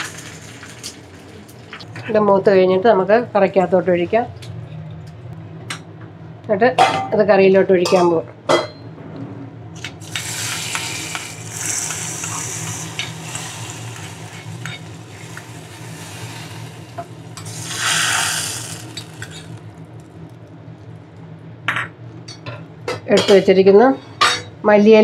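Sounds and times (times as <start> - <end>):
hot oil sizzling: 0.0 - 1.8, 10.0 - 20.2.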